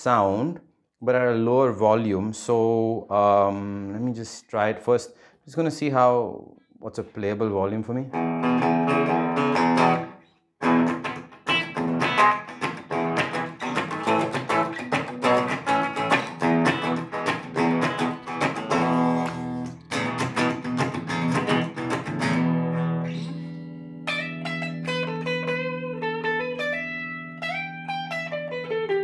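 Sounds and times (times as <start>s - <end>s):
electric guitar chords and notes: 8.1s - 29.0s.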